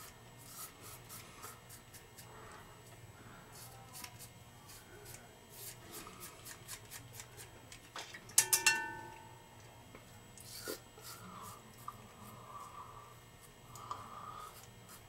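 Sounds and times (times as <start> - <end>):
razor scraping stubble: 0.0 - 2.4, 3.5 - 7.6, 10.4 - 12.7
razor knocking against bowl: 8.4 - 9.4.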